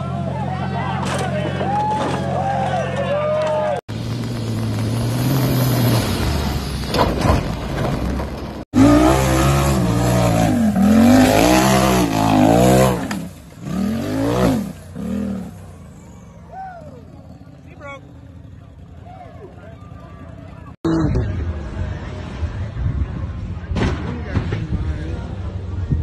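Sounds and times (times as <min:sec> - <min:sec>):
tyres rushing on loose dirt: 0:00.4 - 0:08.6
buggy engine revving hard: 0:04.0 - 0:06.9, 0:08.7 - 0:15.6.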